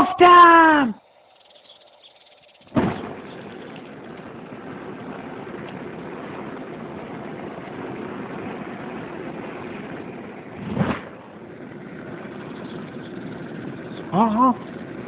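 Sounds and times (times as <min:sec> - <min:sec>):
gas burner rushing: 0:02.7 - 0:15.0
loud whoosh: 0:04.3 - 0:12.4.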